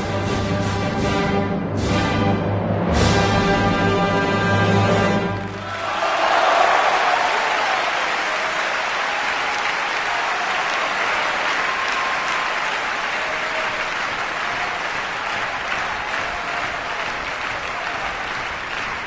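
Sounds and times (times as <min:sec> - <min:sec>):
audience applauding: 0:05.2 - 0:19.0.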